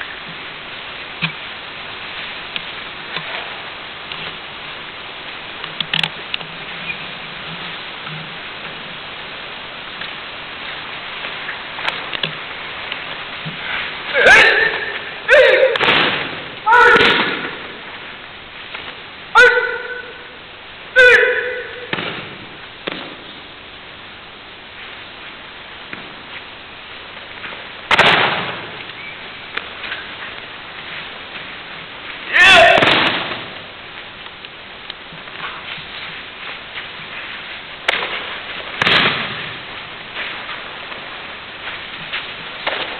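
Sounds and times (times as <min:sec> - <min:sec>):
hall ambience hiss: 0:00.0 - 0:42.9
person shouting kiai: 0:14.1 - 0:15.8, 0:16.6 - 0:17.6, 0:19.3 - 0:21.9, 0:32.3 - 0:33.0.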